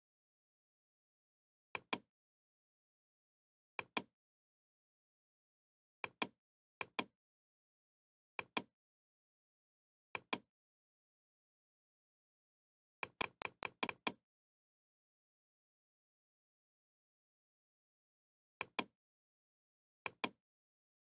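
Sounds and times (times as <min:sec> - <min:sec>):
computer mouse clicking: 0:13.0 - 0:14.2.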